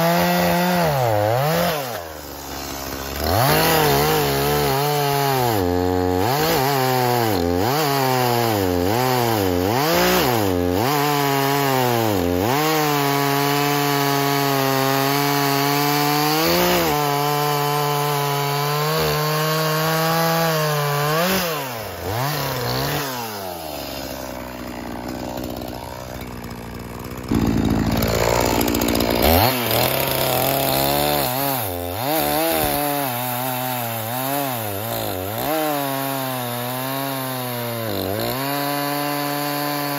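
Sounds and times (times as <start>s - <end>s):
chainsaw revving and cutting log: 0.0s - 39.9s.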